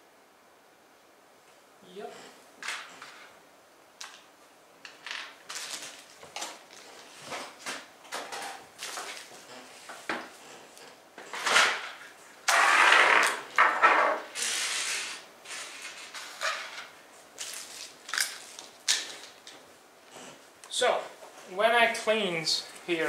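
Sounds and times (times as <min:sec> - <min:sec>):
packaging rustling and scraping: 0:04.9 - 0:19.6.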